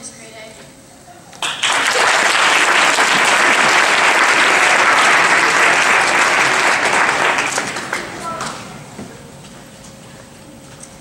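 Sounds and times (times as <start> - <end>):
audience applauding: 1.4 - 8.6.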